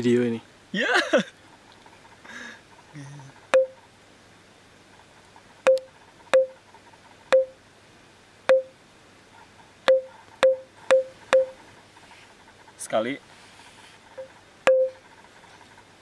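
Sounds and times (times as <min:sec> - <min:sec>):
brief ringing tone: 0:14.7 - 0:15.0.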